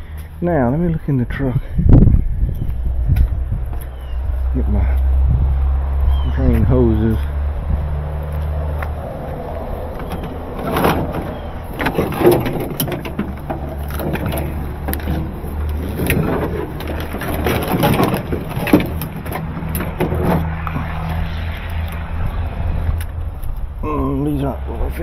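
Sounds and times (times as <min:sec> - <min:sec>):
plastic hoses rustling and clattering: 0:09.8 - 0:20.9.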